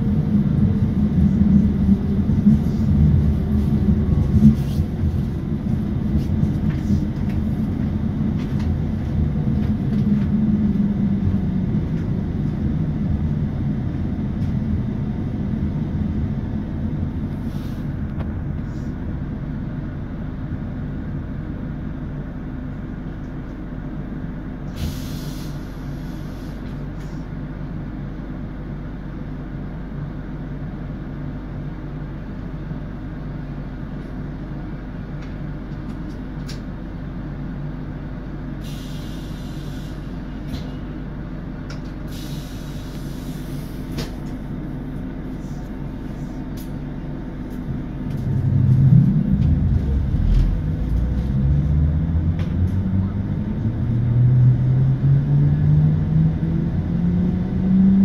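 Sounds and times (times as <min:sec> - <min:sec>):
low rumble: 0:00.0 - 0:21.9, 0:42.4 - 0:58.0
electric train humming: 0:00.0 - 0:24.7, 0:27.4 - 0:58.0
compressed air hisses: 0:24.7 - 0:26.6, 0:38.6 - 0:40.1, 0:42.1 - 0:43.8.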